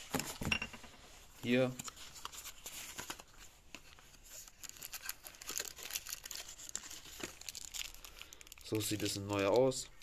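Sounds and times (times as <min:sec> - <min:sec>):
packaging crinkling: 0:04.3 - 0:09.9.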